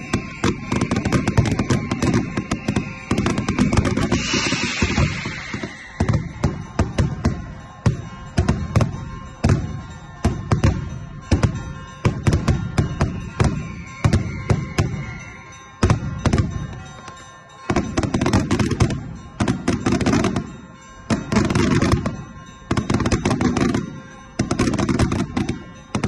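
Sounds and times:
firework crackling: 0.0 - 16.7
firework bangs echoing: 0.0 - 16.9, 17.6 - 26.0.

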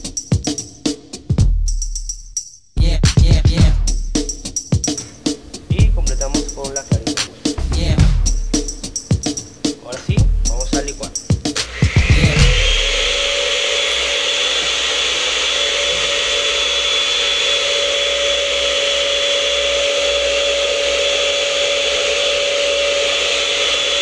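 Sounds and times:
electric blender running: 11.6 - 24.0.

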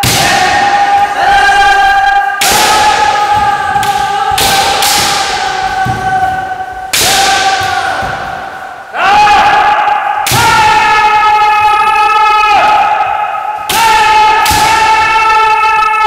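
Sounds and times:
bamboo sword strikes: 0.0 - 0.8, 2.4 - 6.2, 6.9 - 8.6, 13.7 - 15.1
people shouting: 0.0 - 16.0.

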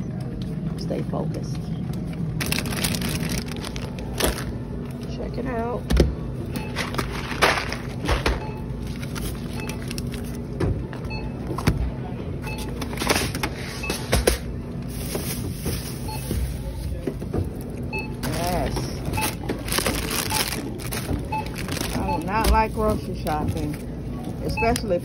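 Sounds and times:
steady low hum: 0.0 - 25.0
groceries knocking and clunking: 0.1 - 25.0
plastic bags rustling: 2.3 - 5.1, 6.6 - 10.5, 12.7 - 24.8.

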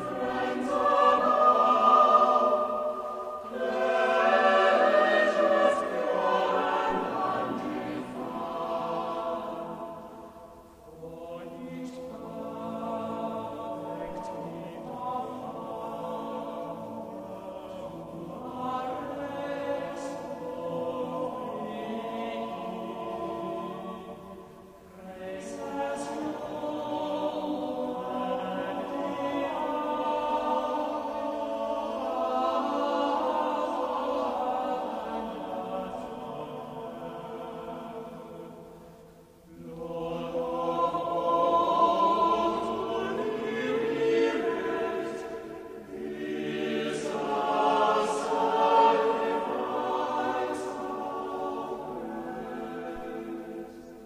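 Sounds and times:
choir singing gospel: 0.0 - 54.0.

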